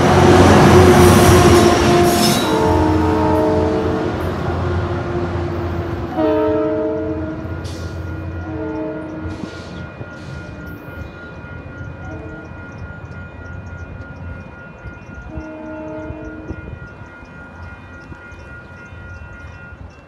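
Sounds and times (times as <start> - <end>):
train horn blast: 0.0 - 10.8, 12.0 - 12.7, 15.3 - 16.7
crossing bell ringing: 0.0 - 20.0
train engine rumbling: 0.0 - 20.0.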